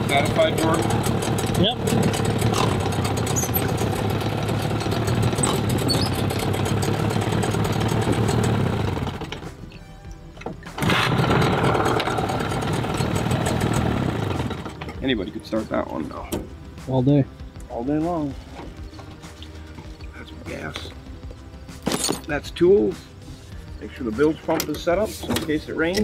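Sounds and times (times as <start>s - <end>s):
outboard pull-start: 0.0s - 15.2s
outboard motor running: 0.0s - 16.6s.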